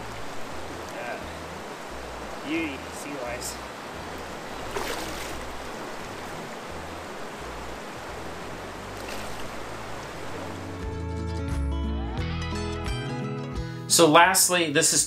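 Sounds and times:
river water flowing: 0:00.0 - 0:11.5.

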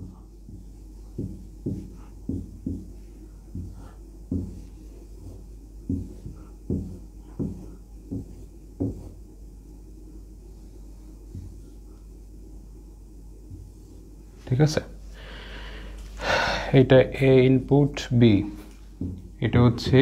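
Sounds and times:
marker knocking and scraping whiteboard: 0:00.0 - 0:09.4, 0:10.6 - 0:12.1, 0:13.4 - 0:14.2, 0:18.4 - 0:20.0.

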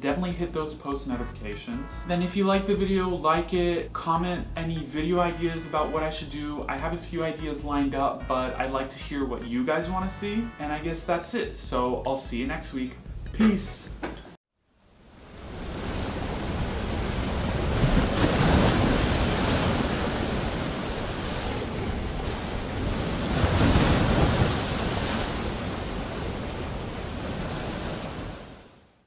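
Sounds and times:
ocean waves breaking: 0:14.9 - 0:29.0.

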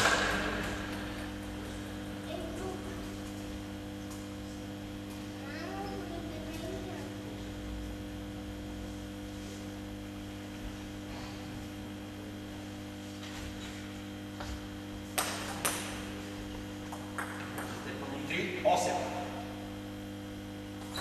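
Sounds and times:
electrical mains hum: 0:00.0 - 0:21.0
table tennis ball tapping: 0:16.9 - 0:17.8.

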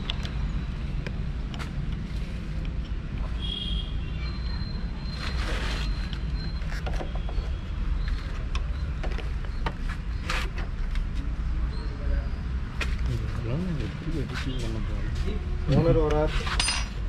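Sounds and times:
small clicks scrapes and creaks: 0:05.2 - 0:07.5.

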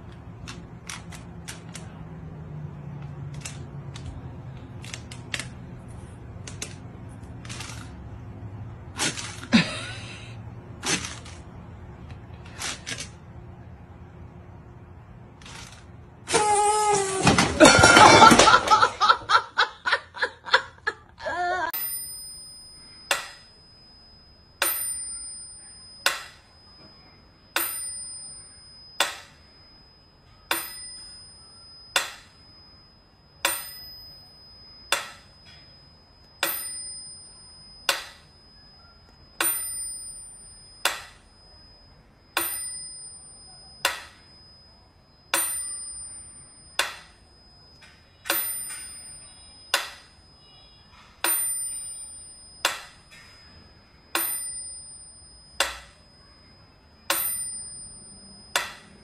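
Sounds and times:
metronome bell ringing: 0:21.7 - 0:59.0.

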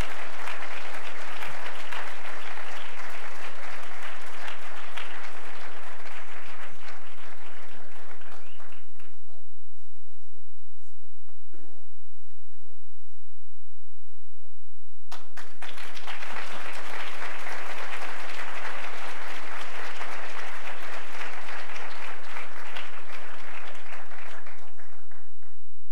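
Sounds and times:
audience applauding: 0:00.0 - 0:09.2, 0:15.1 - 0:25.6.

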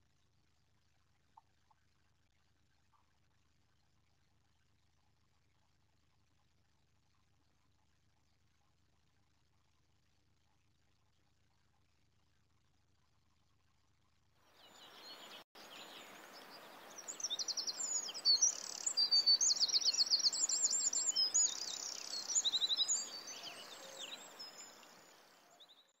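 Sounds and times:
steady outdoor hiss: 0:14.5 - 0:25.9
songbirds singing: 0:14.6 - 0:26.0.

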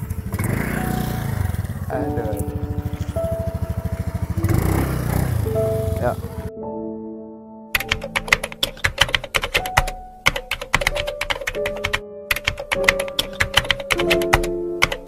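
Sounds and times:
background music with held notes: 0:00.0 - 0:15.0
computer keyboard key clicks: 0:07.8 - 0:15.0.

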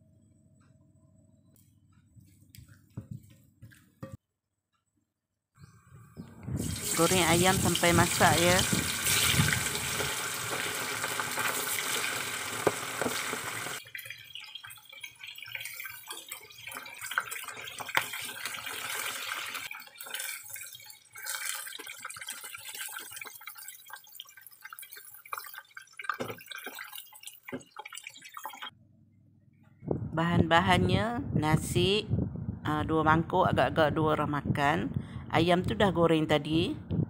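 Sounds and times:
deep-frying sizzle: 0:06.6 - 0:28.7
oil pops and crackles: 0:08.6 - 0:14.8, 0:15.5 - 0:28.6.

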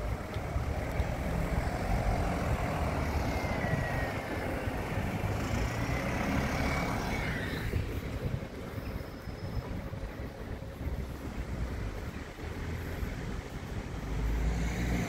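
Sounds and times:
bus driving past: 0:00.0 - 0:15.0.

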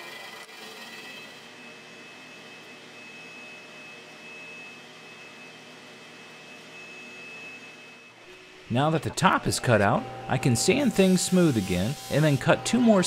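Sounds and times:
bandsaw running: 0:00.0 - 0:01.5, 0:08.7 - 0:13.0.

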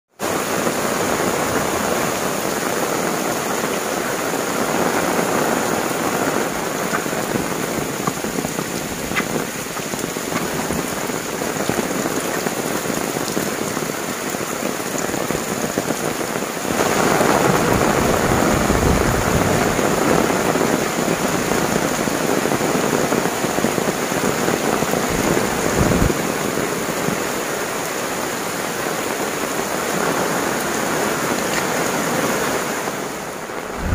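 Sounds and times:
heavy rain on roofs and leaves: 0:00.1 - 0:33.9
water running off eaves: 0:00.2 - 0:33.9
low rumbles: 0:33.6 - 0:33.9.

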